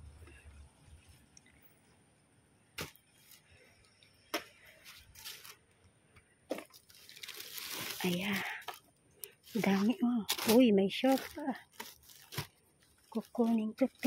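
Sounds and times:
plastic bags rustling: 0:04.6 - 0:05.7, 0:06.5 - 0:14.0.

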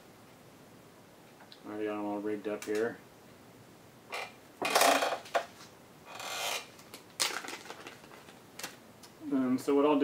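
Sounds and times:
plastic bag rustling: 0:05.0 - 0:08.8.

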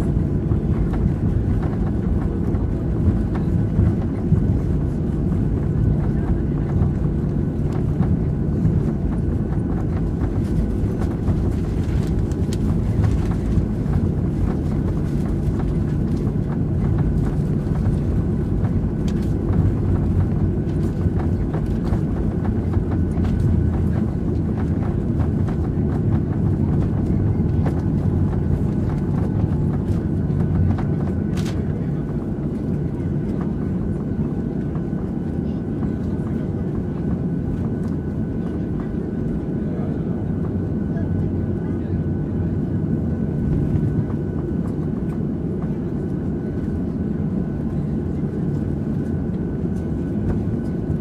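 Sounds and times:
aircraft cabin engine rumble: 0:00.0 - 0:51.0.

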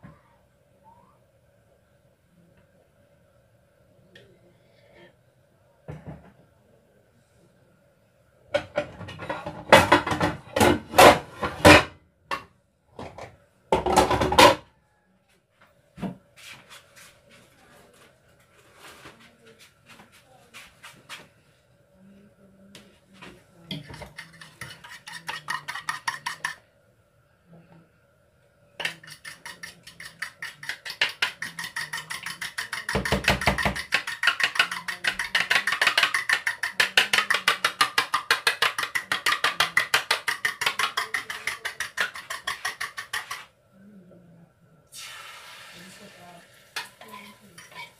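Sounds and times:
utensil knocking against plastic bowl: 0:28.8 - 0:43.4.

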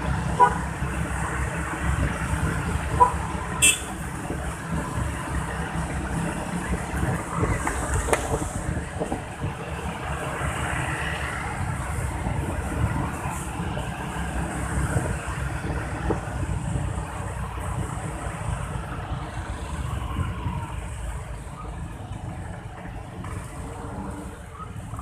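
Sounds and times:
road noise: 0:00.0 - 0:25.0
wind buffeting microphone: 0:00.1 - 0:25.0.

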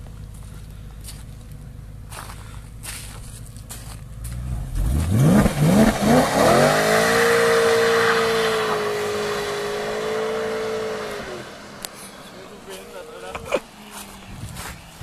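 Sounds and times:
car engine accelerating hard: 0:03.6 - 0:15.0.

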